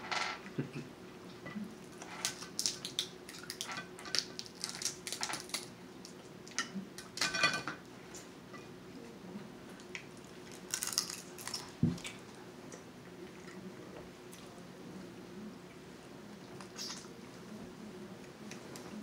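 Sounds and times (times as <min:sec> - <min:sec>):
crab shells cracking: 0:02.0 - 0:06.2, 0:09.9 - 0:11.7.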